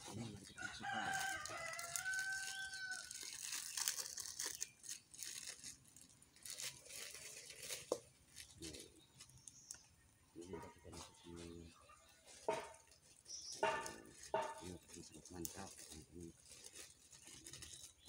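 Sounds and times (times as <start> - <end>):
plastic packet tearing and crinkling: 0.1 - 9.8, 12.3 - 18.0
rooster crowing: 0.6 - 3.2.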